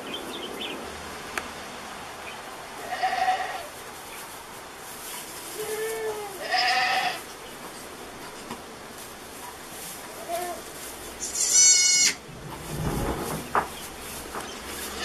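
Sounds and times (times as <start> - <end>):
goats bleating: 2.8 - 3.7, 5.6 - 7.2, 10.2 - 12.2
high-pitched kid bleat: 5.6 - 7.2, 10.2 - 10.6, 11.2 - 12.2.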